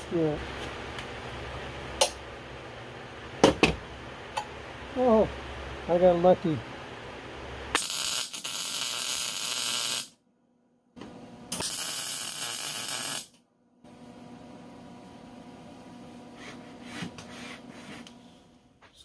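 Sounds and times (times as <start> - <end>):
low steady hum: 0.0 - 7.8, 13.6 - 19.0
welding arc crackling and sizzling: 7.7 - 10.2, 11.5 - 13.4.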